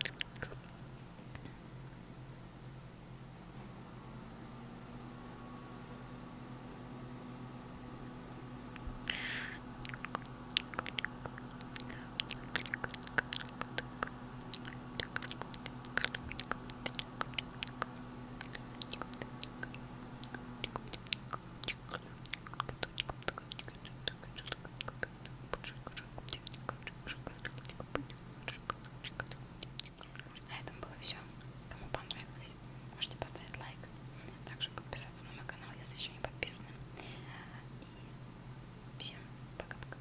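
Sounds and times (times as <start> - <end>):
wet mouth clicks: 0.0 - 0.7, 8.7 - 30.9.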